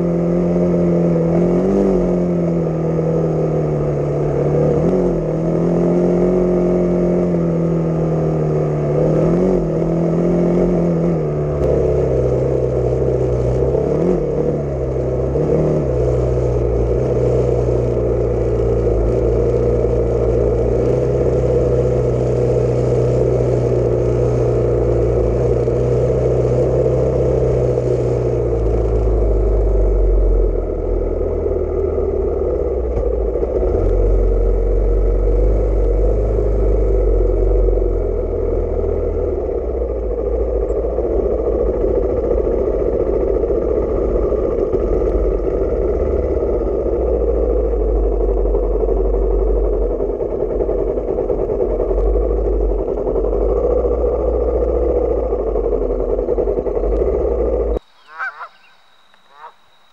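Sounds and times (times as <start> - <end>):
dirt bike engine running: 0.0 - 59.9.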